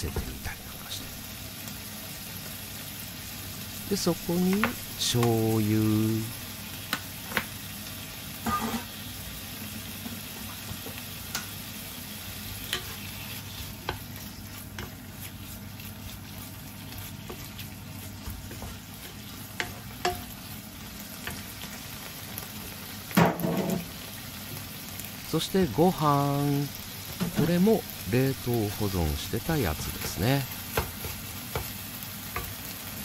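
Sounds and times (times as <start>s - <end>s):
food sizzling in a frying pan: 0.0s - 33.0s
wooden spatula scraping and tapping: 4.4s - 5.4s, 12.7s - 20.5s, 29.5s - 32.6s.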